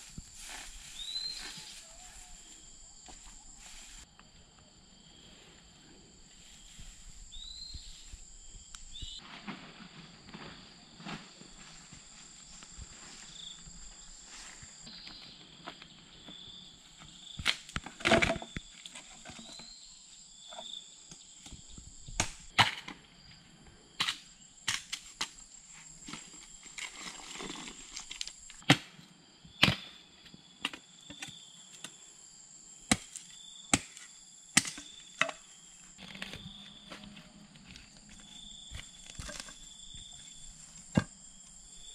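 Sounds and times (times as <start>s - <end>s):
bamboo branches rustling: 0.0s - 4.1s, 26.0s - 28.6s, 35.9s - 39.7s
machete chopping bamboo: 28.6s - 28.9s, 29.6s - 29.9s, 32.9s - 35.4s.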